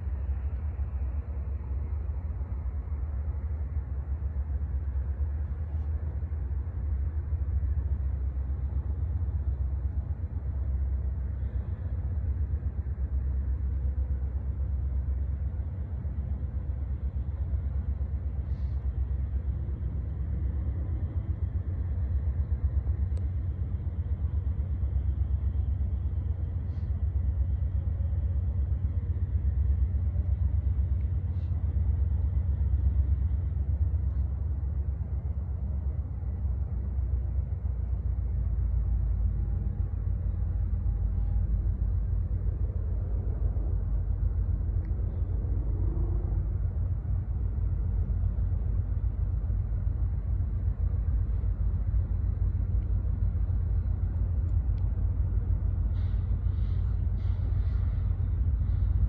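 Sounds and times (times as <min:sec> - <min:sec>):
distant diesel locomotives rumbling: 0:00.0 - 0:59.0.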